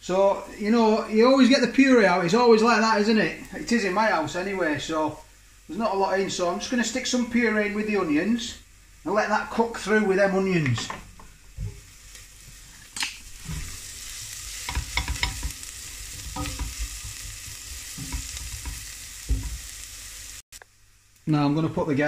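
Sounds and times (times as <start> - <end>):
onions sizzling in oil: 0.0 - 22.0
spatula scraping and knocking pan: 13.4 - 19.8.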